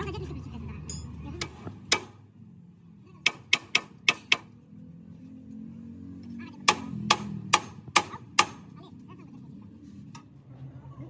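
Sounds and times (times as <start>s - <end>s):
hammer striking steel: 0.9s - 2.2s, 6.6s - 8.7s.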